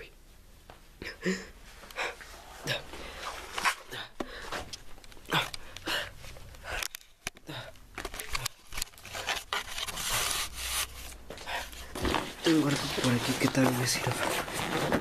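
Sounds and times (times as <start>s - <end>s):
cloth rustling and scraping: 8.2s - 15.0s.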